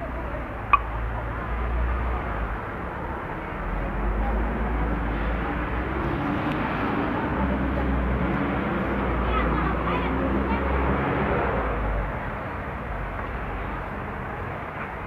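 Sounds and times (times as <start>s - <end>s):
passing traffic rumble: 0.0s - 15.0s.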